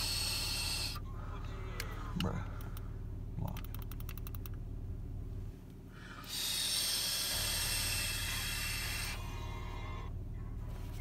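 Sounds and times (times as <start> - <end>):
car engine idling: 0.0 - 11.0
ratcheting clicks: 3.5 - 4.6.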